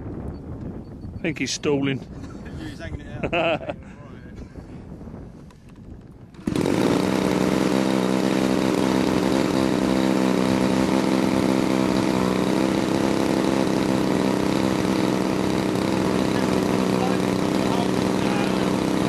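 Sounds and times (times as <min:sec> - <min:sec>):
model aircraft engine running: 0:05.6 - 0:19.0.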